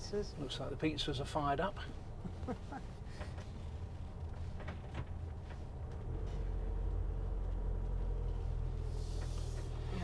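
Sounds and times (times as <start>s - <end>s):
diesel engine droning: 5.3s - 10.0s.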